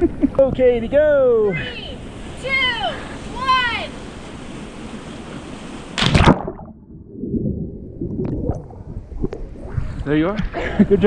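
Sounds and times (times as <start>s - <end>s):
loud splash into water: 6.0s - 8.8s.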